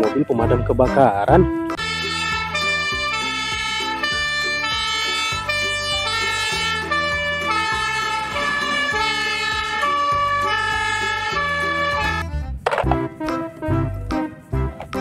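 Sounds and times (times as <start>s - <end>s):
fire engine two-tone siren: 1.8s - 12.2s.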